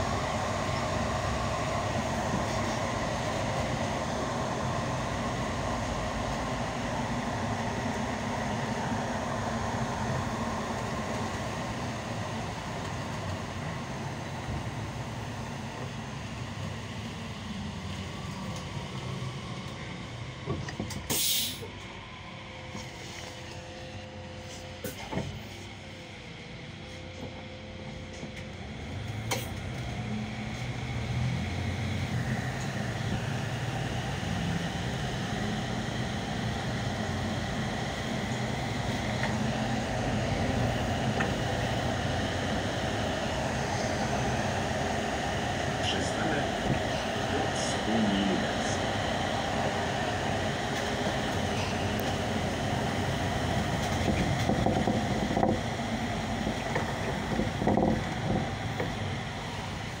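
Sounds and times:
bus engine hum: 0:00.0 - 1:00.0
road and rolling noise: 0:00.0 - 1:00.0.

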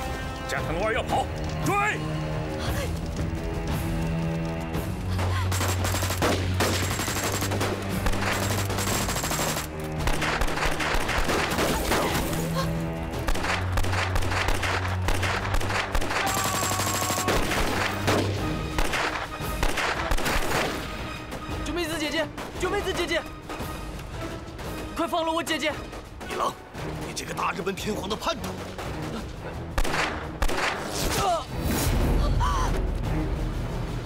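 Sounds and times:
low droning music score: 0:00.0 - 0:25.0, 0:25.7 - 0:34.0
rapid gunfire: 0:05.2 - 0:12.2, 0:13.2 - 0:20.8, 0:29.8 - 0:31.0.

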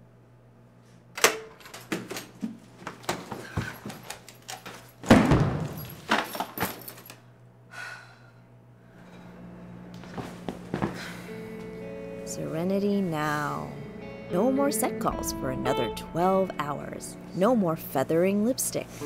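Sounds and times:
keys and lock clicking: 0:03.9 - 0:05.0.

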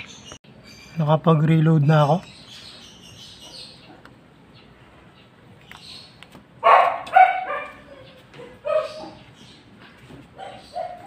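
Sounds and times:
dog barking: 0:06.6 - 0:09.3, 0:10.4 - 0:11.0.

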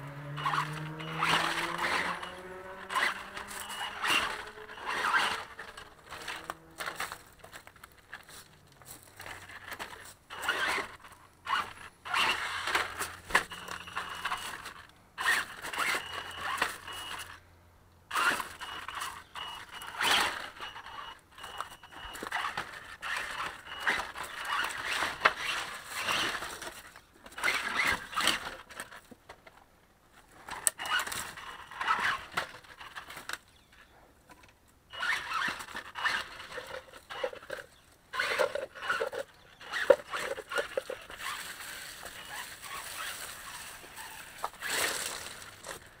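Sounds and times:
electric motor whine: 0:00.0 - 0:07.2
tyres scrabbling over leaves: 0:00.4 - 0:17.4, 0:22.1 - 0:29.0, 0:34.9 - 0:46.0.

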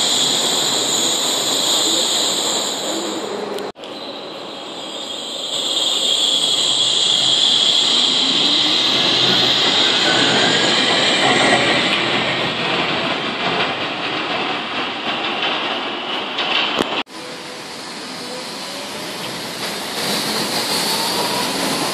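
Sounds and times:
high whine of train: 0:00.0 - 0:21.9
train wheels running on rail: 0:05.4 - 0:21.9.

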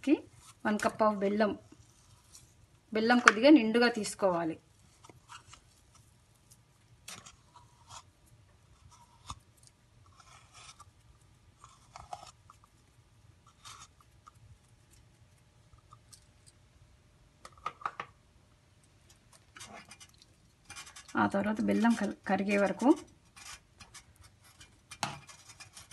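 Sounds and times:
scraping from a plastic cup: 0:19.4 - 0:25.9
spoon scraping steel pot: 0:19.4 - 0:25.9.

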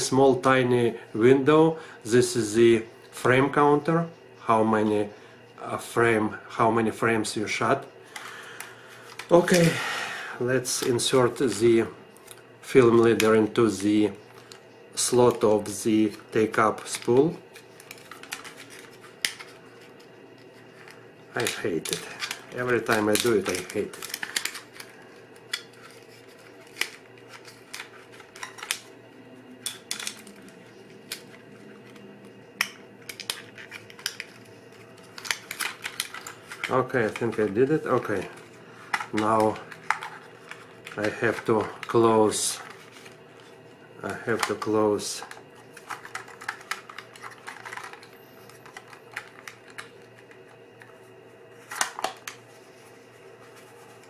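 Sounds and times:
film strip and camera clicks: 0:10.7 - 0:28.9, 0:29.7 - 0:42.0, 0:42.6 - 0:51.0.

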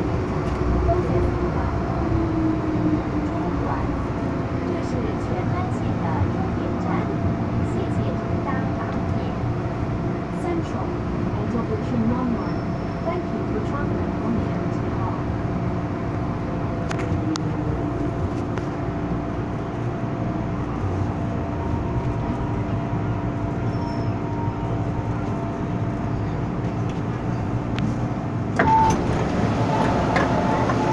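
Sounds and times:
train rumble: 0:00.0 - 0:30.9
short beep: 0:28.6 - 0:29.0.

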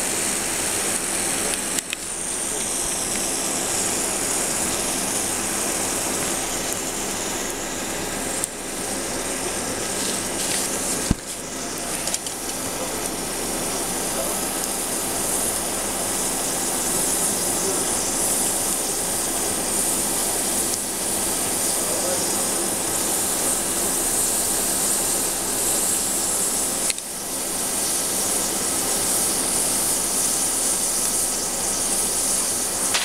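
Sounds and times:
liquid nitrogen hissing: 0:00.0 - 0:33.0.

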